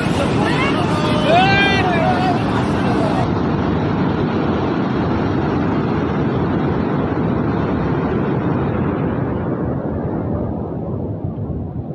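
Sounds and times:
heavy rush of floodwater: 0.0s - 9.4s.

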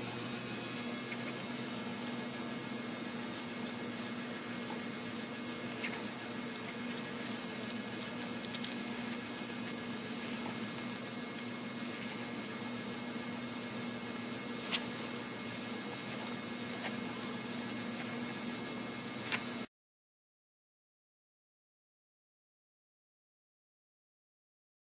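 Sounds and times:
electrical hum: 0.0s - 19.7s.

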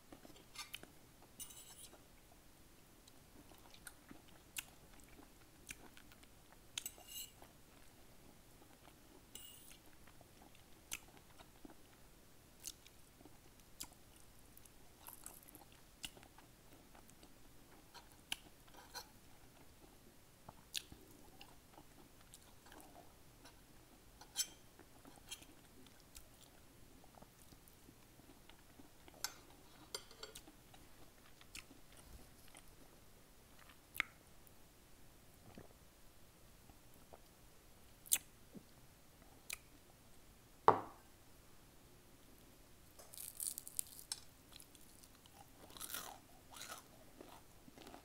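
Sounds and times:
chewing greens: 3.1s - 12.0s, 43.0s - 48.0s.

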